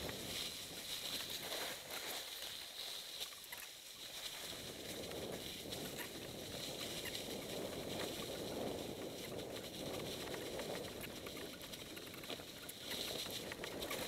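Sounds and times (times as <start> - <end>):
tyres crunching dry leaves: 0.0 - 11.2
bike clicks and rattles: 4.3 - 14.0.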